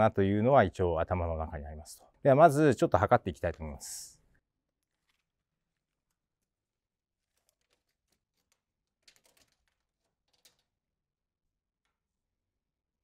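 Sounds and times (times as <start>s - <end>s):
faint clicks and rustles: 4.7s - 10.8s.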